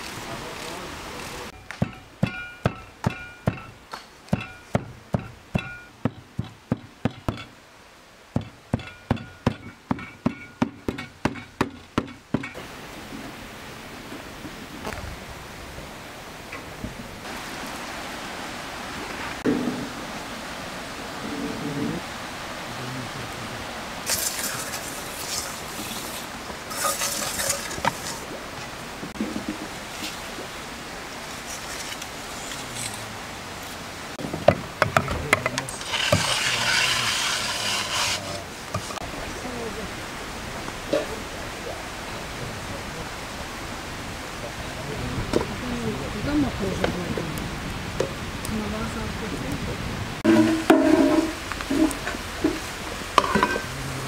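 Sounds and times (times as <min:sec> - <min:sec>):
river water rushing: 0:00.0 - 0:11.6, 0:12.2 - 0:54.0
crackling and scraping: 0:24.1 - 0:30.4, 0:31.2 - 0:33.8, 0:35.1 - 0:39.0.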